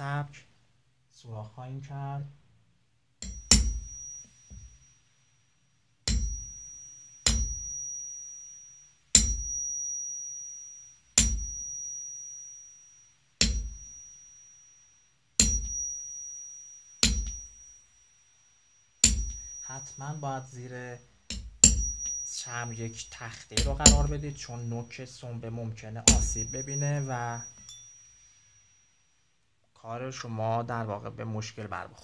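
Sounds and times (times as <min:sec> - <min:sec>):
hammer striking metal punch: 0:03.2 - 0:03.9, 0:07.3 - 0:07.6, 0:23.6 - 0:24.4, 0:26.1 - 0:27.9.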